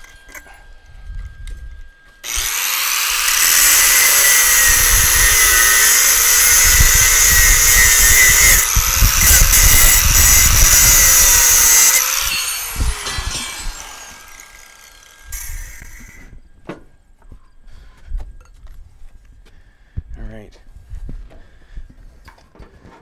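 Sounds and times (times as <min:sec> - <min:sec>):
cut-off wheel cutting steel: 0:02.2 - 0:16.3.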